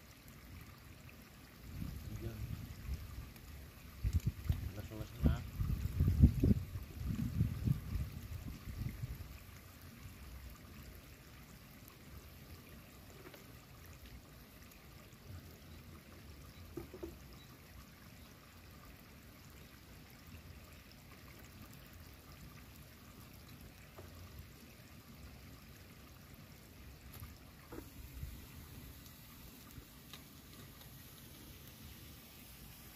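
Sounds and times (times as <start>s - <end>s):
fish sizzling over embers: 27.0s - 32.9s.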